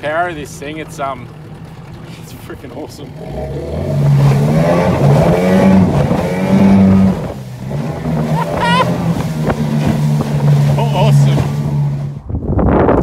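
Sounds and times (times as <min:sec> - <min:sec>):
outboard motor running hard: 0:00.0 - 0:12.2
person yelling: 0:08.3 - 0:09.0.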